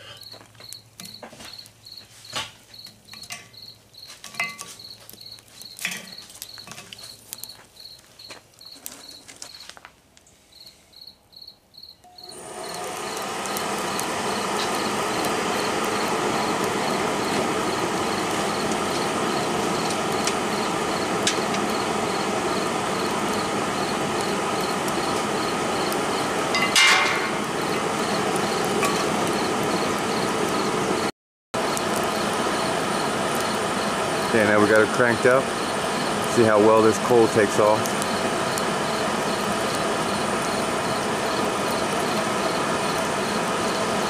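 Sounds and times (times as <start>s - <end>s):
hair dryer blowing air: 12.2s - 31.0s, 31.6s - 44.0s.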